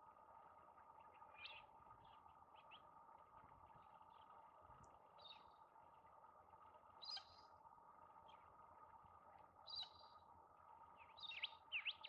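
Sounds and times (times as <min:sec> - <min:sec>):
faint hum: 0:00.0 - 0:12.0
faint bird chirps: 0:00.9 - 0:02.9, 0:05.1 - 0:06.1, 0:06.9 - 0:07.6, 0:09.6 - 0:10.3, 0:10.9 - 0:12.0.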